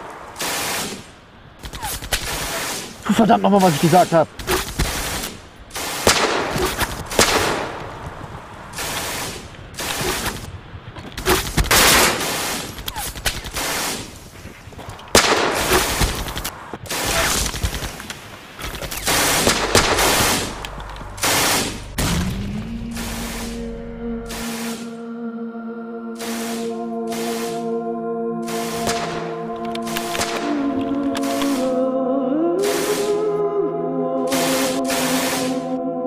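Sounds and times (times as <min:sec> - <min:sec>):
gunfire bursts: 0:00.0 - 0:10.6, 0:11.2 - 0:14.2, 0:15.1 - 0:23.6, 0:24.3 - 0:25.0, 0:26.2 - 0:27.6, 0:28.4 - 0:31.7, 0:32.6 - 0:33.2, 0:34.3 - 0:35.6
low musical drone: 0:19.3 - 0:36.0.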